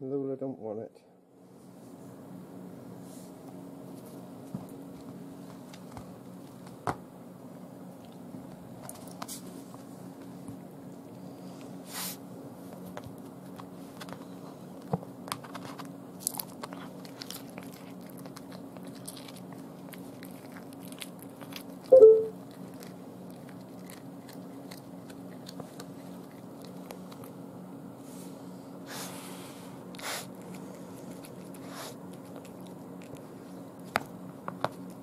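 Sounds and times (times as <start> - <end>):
kitten chewing crunching bone: 12.6 - 28.0, 29.8 - 35.0.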